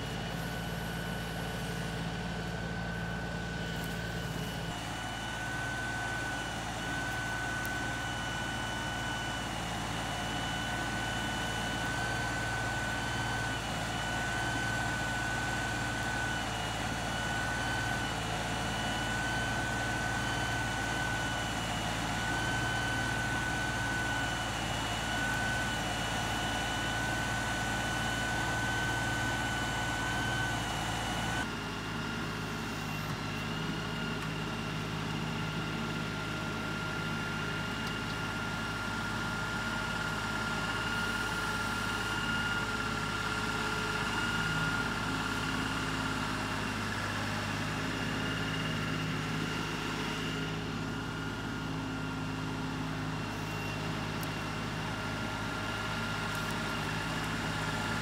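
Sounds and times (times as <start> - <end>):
steady high whine: 0.0 - 58.0
tractor diesel engine running: 0.0 - 58.0.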